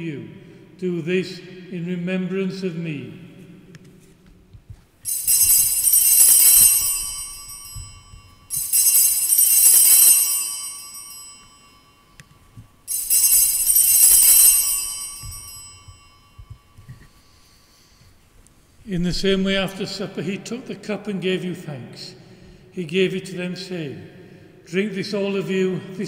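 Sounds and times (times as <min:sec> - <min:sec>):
altar bell ringing: 0:05.0 - 0:18.0.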